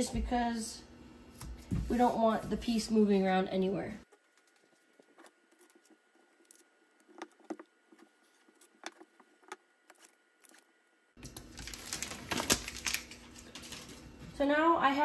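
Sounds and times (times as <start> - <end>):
tape clicks and rustles: 4.1 - 14.1
tape backing peeled off: 10.0 - 14.0.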